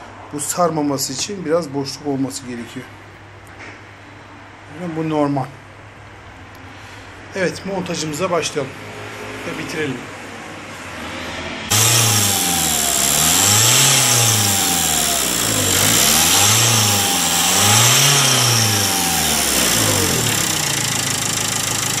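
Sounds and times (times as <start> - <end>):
diesel engine revving: 11.7 - 22.0
turbocharger whine: 11.7 - 22.0.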